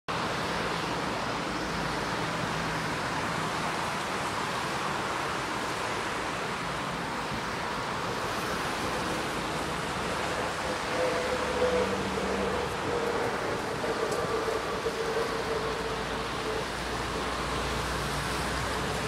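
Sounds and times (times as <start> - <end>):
steady rushing noise: 0.1 - 19.0.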